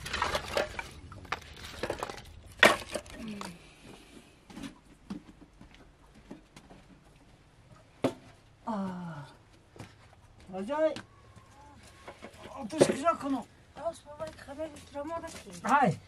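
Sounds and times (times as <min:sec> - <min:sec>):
firewood clattering in metal basin: 0:00.0 - 0:03.6, 0:12.0 - 0:13.4.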